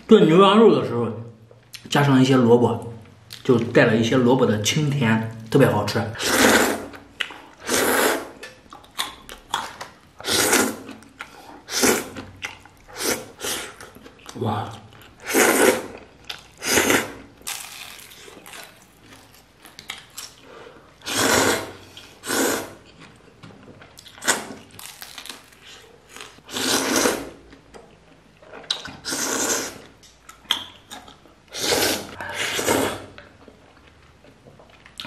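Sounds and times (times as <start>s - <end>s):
person slurping noodles: 6.2s - 7.0s, 7.6s - 8.4s, 10.2s - 12.2s, 12.9s - 13.9s, 15.2s - 16.0s, 16.6s - 17.3s, 21.0s - 22.9s, 26.4s - 27.4s, 29.0s - 29.9s, 31.5s - 33.2s
slurping broth from a bowl: 7.6s - 8.4s, 15.2s - 16.0s, 21.0s - 22.8s, 26.4s - 27.4s, 28.9s - 29.9s, 31.5s - 33.2s
chewing: 8.4s - 10.0s, 10.6s - 16.6s, 17.4s - 20.9s, 22.8s - 26.4s, 27.2s - 31.4s, 32.0s - 35.0s.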